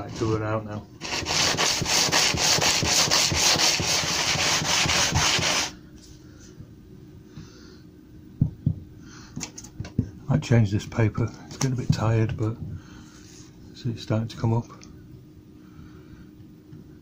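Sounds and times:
blade rubbing on abrasive paper: 1.0 - 5.8.

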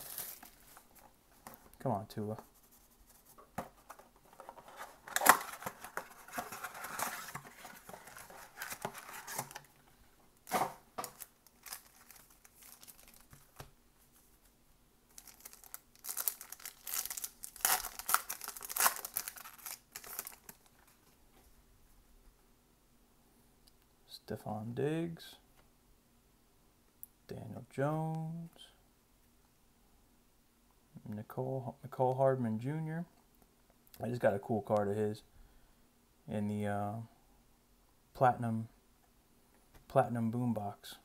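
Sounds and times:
foil pack ripping and crinkling: 11.1 - 13.4, 15.2 - 20.6.

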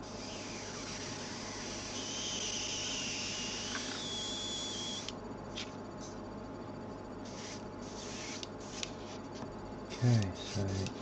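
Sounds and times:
thin high whistle: 0.8 - 5.1
airbrush spraying hiss: 7.2 - 9.2.

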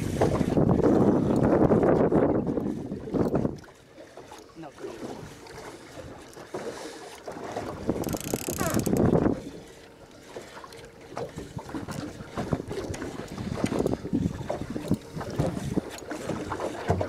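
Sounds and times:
wind buffeting microphone: 0.0 - 3.7, 7.6 - 9.6, 11.4 - 17.0
knocks and bumps on boat: 0.0 - 17.0.

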